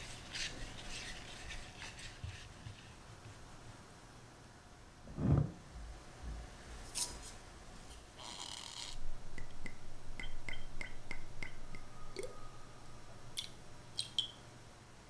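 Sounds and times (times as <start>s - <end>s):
liquid dripping: 13.4s - 14.4s.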